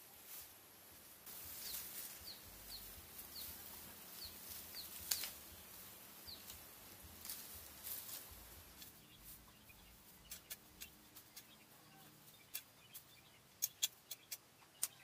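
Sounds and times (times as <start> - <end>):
dry branches rustling and crackling: 0.0 - 13.1
bird chirping: 1.3 - 15.0
branch snapping: 4.5 - 5.5.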